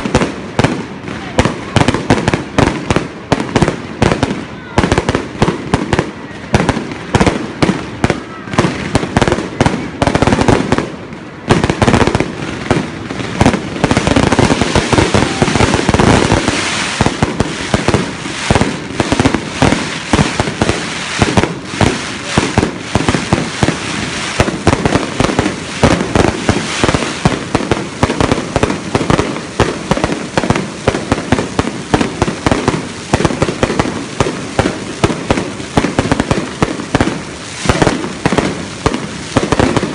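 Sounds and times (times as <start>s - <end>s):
fireworks bangs and crackling: 0.0s - 39.9s.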